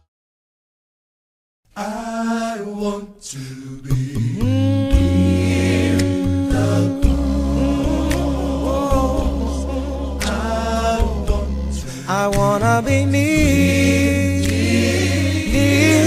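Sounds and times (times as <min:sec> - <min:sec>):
worship singing: 0:01.8 - 0:16.0
low bass: 0:04.2 - 0:16.0.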